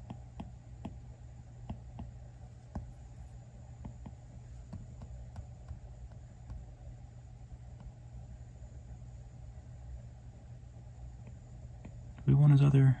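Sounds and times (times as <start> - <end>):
stylus tapping on glass screen: 0.0 - 1.0, 1.6 - 3.0, 3.8 - 6.7
low steady hum: 0.0 - 13.0.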